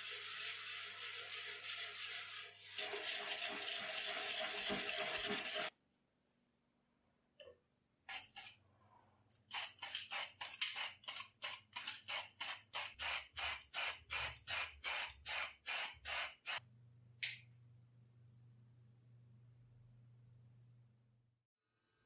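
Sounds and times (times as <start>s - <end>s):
aerosol spray can hissing: 9.5s - 16.6s.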